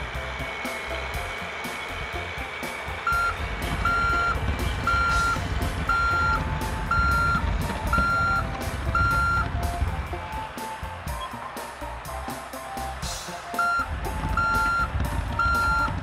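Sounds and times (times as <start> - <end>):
low engine rumble: 0.0 - 16.0
backup alarm beeps: 3.1 - 9.7, 13.5 - 16.0.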